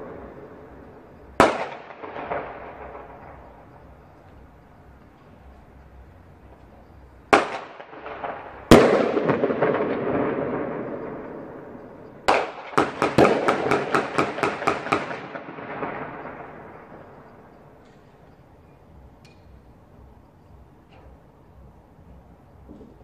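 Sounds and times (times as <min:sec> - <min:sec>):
firecracker bangs: 0:01.2 - 0:04.2, 0:07.3 - 0:17.2
rapid string of firecracker cracks: 0:01.4 - 0:03.8, 0:12.3 - 0:16.2.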